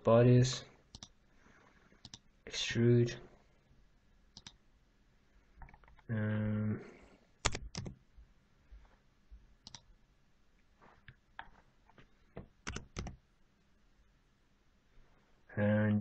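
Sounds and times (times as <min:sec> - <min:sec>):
mouse and keyboard clicks: 0:00.9 - 0:01.2, 0:02.0 - 0:02.2, 0:04.4 - 0:04.6, 0:07.4 - 0:08.0, 0:09.6 - 0:09.9.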